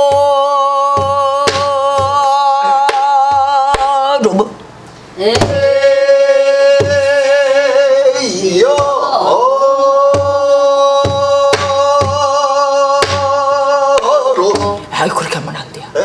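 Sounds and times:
person singing with vibrato: 0.0 - 16.0.

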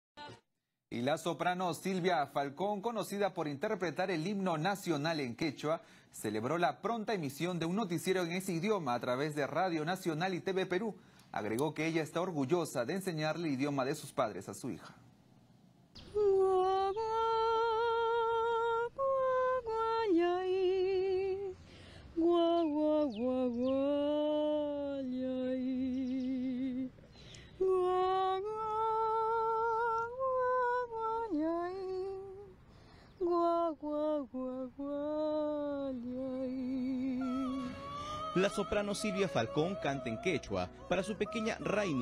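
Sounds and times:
soprano singing unaccompanied: 0.2 - 0.4, 16.0 - 42.0.

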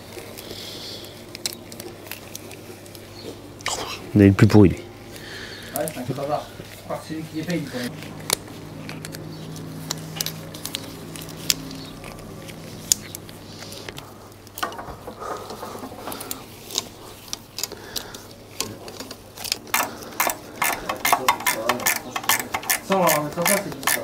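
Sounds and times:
low steady hum: 0.0 - 23.9
rustling: 5.0 - 24.0
pliers clicking and tapping metal: 16.1 - 24.0.

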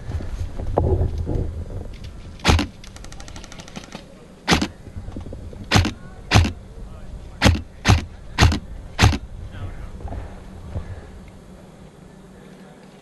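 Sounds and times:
faint rapid rattle: 1.8 - 6.6
airsoft rifle shots: 2.4 - 4.8, 5.7 - 6.6, 7.4 - 9.2.

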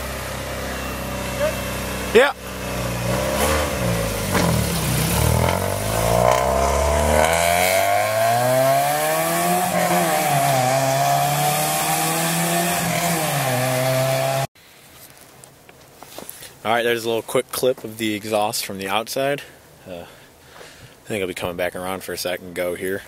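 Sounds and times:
car engine accelerating: 0.0 - 14.5
loud buzzy exhaust: 0.0 - 14.5.

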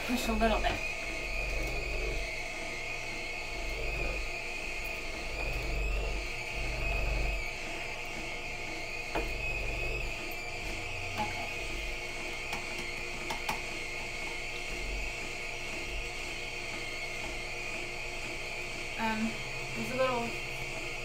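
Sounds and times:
juicer humming: 0.0 - 21.0.

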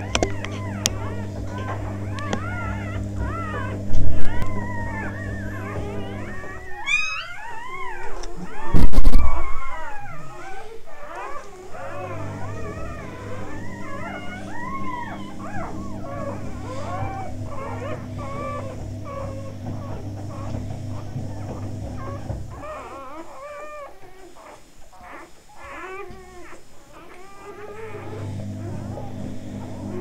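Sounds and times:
puppies squeaking and whimpering: 0.0 - 30.0
steady low hum: 0.0 - 30.0.

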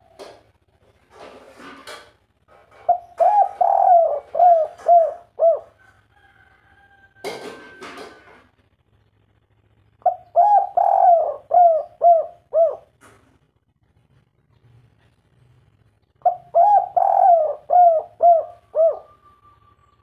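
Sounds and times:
dove cooing: 2.7 - 5.9, 10.0 - 13.0, 16.2 - 19.6.

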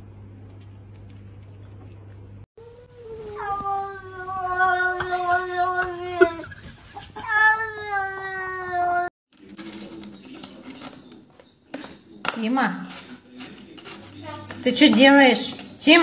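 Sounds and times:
cat yowling: 7.2 - 9.1.

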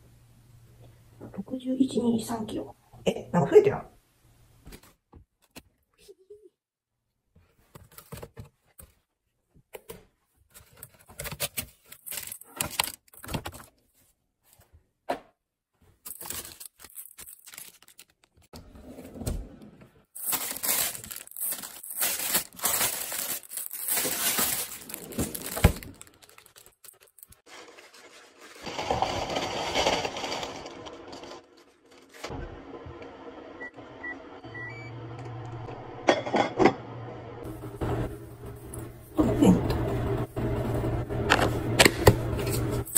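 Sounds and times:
plastic bags rustling: 10.6 - 13.6, 16.0 - 18.5, 20.1 - 32.3.

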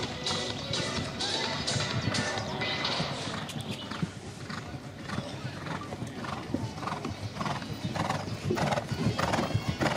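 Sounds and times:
hoofbeats on grass: 0.0 - 9.9
horse breathing: 3.0 - 9.9.

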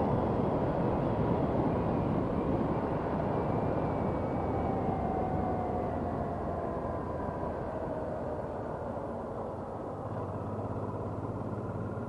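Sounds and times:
wind rush on microphone: 0.0 - 9.0
motorcycle engine: 10.0 - 12.0.

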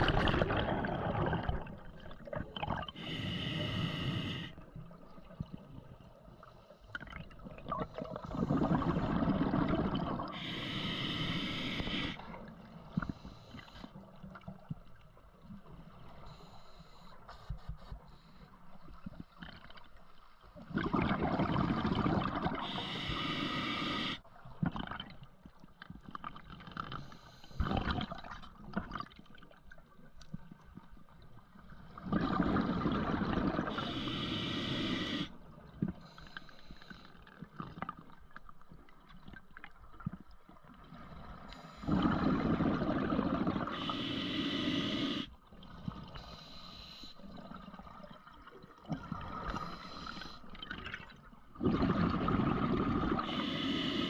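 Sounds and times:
quiet water noise: 0.0 - 54.0
regulator breathing bubbling and hissing: 2.6 - 4.6, 7.7 - 12.3, 20.8 - 24.2, 32.1 - 35.4, 41.5 - 45.3, 46.1 - 47.3, 49.2 - 50.5, 51.6 - 54.0.

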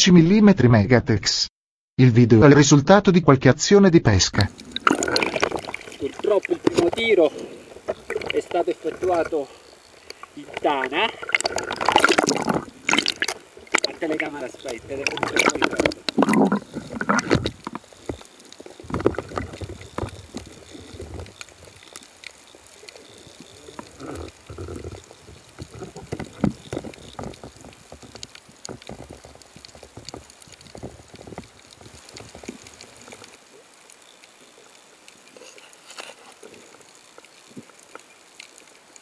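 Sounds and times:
faint underwater hiss: 4.1 - 39.0
small underwater clicks: 4.5 - 39.0
underwater water sloshing: 4.5 - 39.0
knocks and splashes: 10.6 - 14.0, 15.0 - 18.2, 18.8 - 20.4.

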